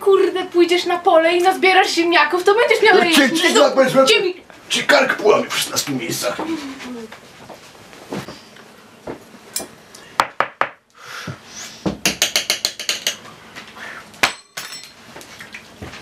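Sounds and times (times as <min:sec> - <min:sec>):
hard objects knocking: 0:11.9 - 0:13.2.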